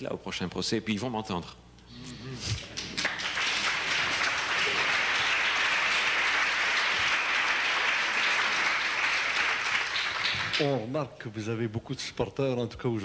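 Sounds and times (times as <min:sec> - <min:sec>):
audience applauding: 0:02.7 - 0:10.8.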